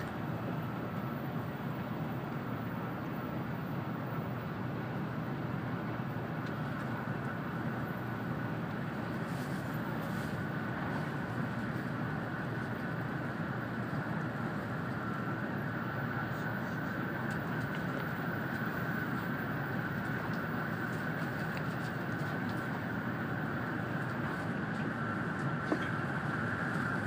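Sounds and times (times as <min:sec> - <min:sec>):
faint high whine: 0:00.0 - 0:27.0
train cabin rumble and rush: 0:00.0 - 0:27.0.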